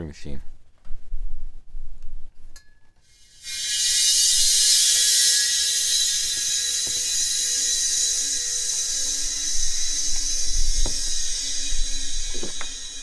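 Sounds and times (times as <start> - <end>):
high-pitched refrigerant hiss: 3.0 - 13.0.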